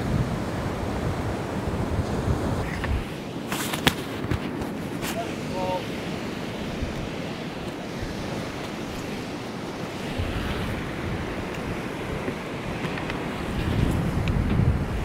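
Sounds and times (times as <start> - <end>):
surf breaking over rocks: 0.0 - 15.0
wind buffeting microphone: 0.0 - 15.0.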